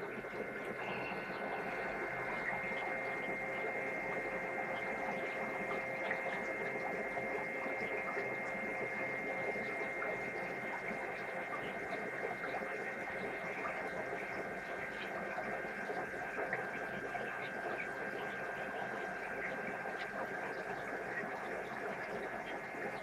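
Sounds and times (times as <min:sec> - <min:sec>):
aquarium sponge filters humming: 0:00.0 - 0:23.0
bubbling water: 0:00.0 - 0:23.0.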